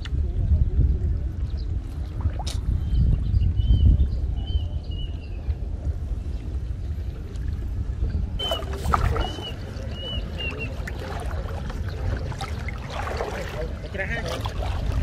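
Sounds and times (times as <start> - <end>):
water splashing and sloshing: 1.0 - 3.2, 5.6 - 15.0
short high chirps: 8.4 - 9.6.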